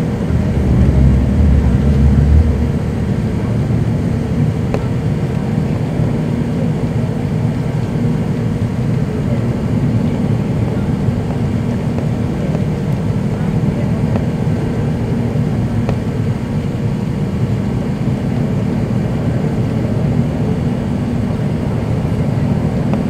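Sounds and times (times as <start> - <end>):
rushing air: 0.0 - 4.7
jet engines rumbling: 0.0 - 23.0.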